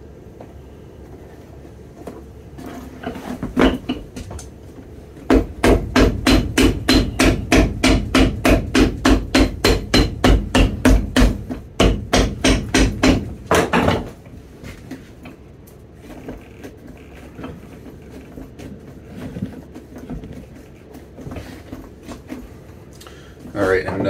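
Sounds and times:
hammer striking leather sole: 0:05.3 - 0:13.9.

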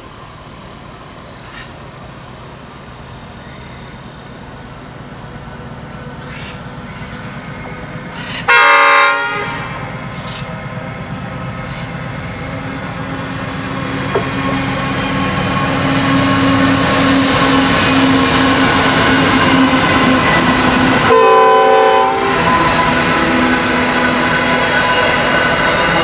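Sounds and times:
diesel locomotive engine drone: 0:00.0 - 0:26.0
train wagons rumbling over rails: 0:00.0 - 0:26.0
locomotive horn: 0:08.4 - 0:10.0, 0:21.0 - 0:23.9.

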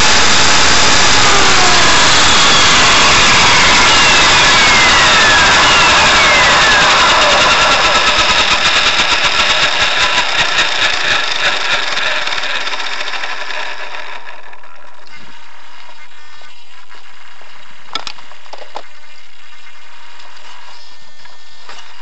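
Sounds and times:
rotor pulsing whoosh: 0:00.0 - 0:15.8
rc helicopter motor whine: 0:00.0 - 0:22.0.

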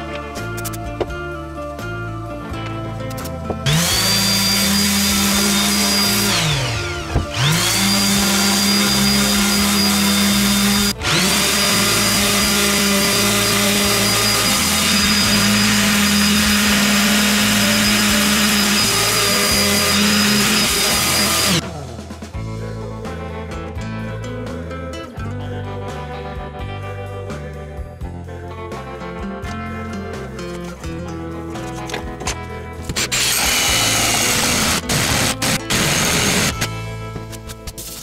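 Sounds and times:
background music: 0:00.0 - 0:38.0
power tool motor whining: 0:03.6 - 0:21.7, 0:32.9 - 0:36.8.

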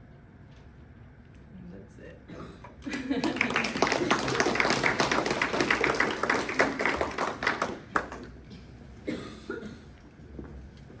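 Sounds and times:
audience clapping: 0:02.8 - 0:08.5.

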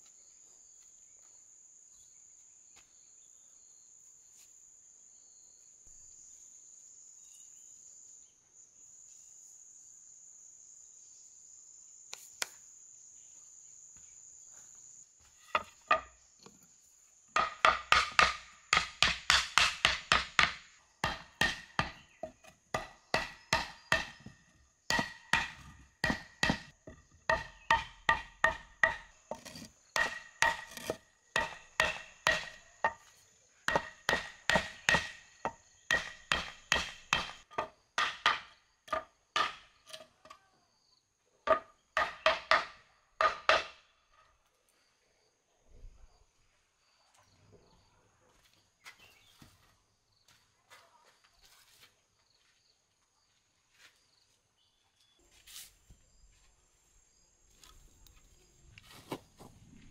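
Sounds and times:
hammer knocking on wooden board: 0:17.4 - 0:24.3, 0:24.9 - 0:33.0, 0:33.7 - 0:39.6.

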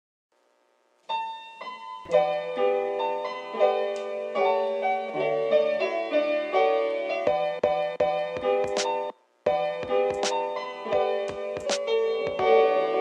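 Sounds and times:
piano background music: 0:01.1 - 0:13.0.

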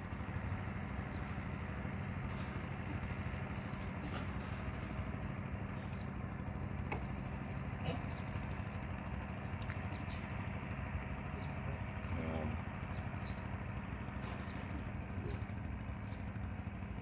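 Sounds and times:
small engine idling: 0:00.0 - 0:17.0.

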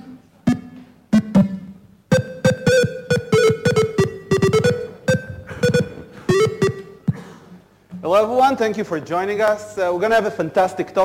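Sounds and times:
buzzy beeping game music: 0:00.5 - 0:07.0
clicking beat: 0:00.5 - 0:07.3.

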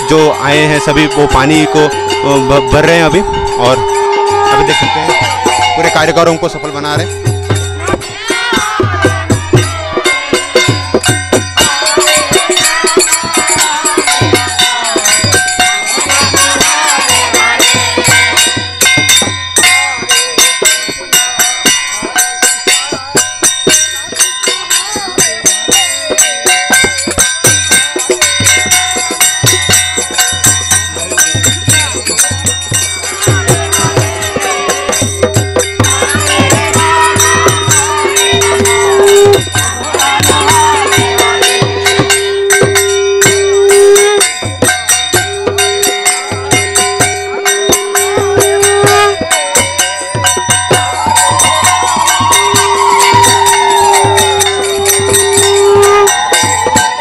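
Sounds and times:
steady held note: 0:00.0 - 0:08.2, 0:33.6 - 0:44.4, 0:45.0 - 0:49.4, 0:51.4 - 0:56.7
dholak drumming: 0:00.0 - 0:57.0
jingling metal percussion: 0:00.0 - 0:57.0
voices chanting: 0:00.0 - 0:57.0.

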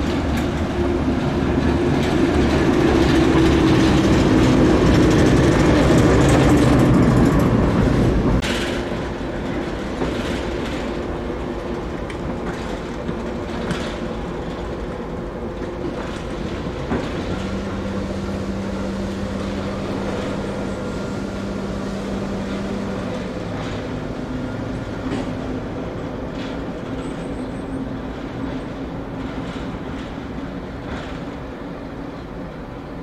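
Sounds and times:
diesel locomotive engine running: 0:00.0 - 0:32.8
clanks from wheels: 0:01.6 - 0:15.0.

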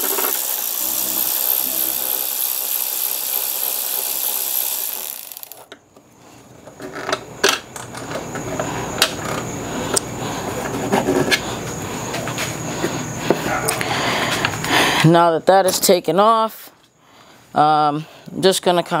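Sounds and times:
power screwdriver running: 0:00.0 - 0:05.7.

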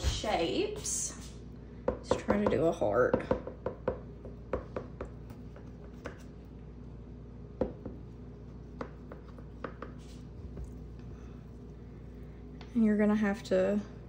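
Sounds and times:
faint steady hum: 0:00.0 - 0:14.0
knife tapping and scraping countertop: 0:04.6 - 0:06.3, 0:08.8 - 0:10.7.

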